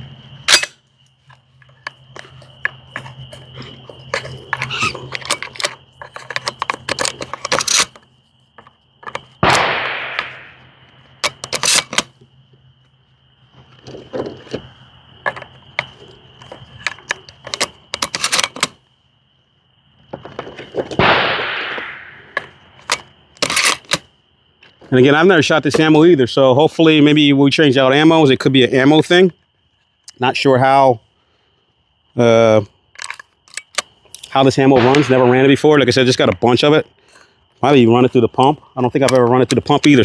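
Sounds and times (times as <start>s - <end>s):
shotgun blasts echoing: 9.4s - 10.6s, 21.0s - 22.4s, 34.8s - 35.6s
shotgun metallic clicks and clacks: 11.2s - 12.1s, 21.0s - 24.1s, 33.0s - 35.6s.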